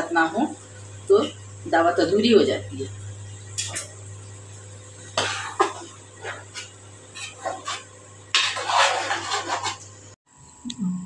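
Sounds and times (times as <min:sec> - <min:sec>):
metal spatula scraping steel pot: 0:05.2 - 0:09.9.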